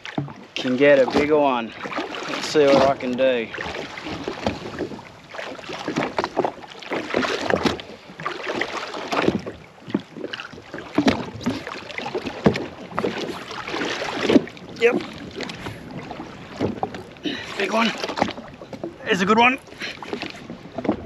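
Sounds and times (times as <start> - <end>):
water lapping against hull: 0.0 - 21.0.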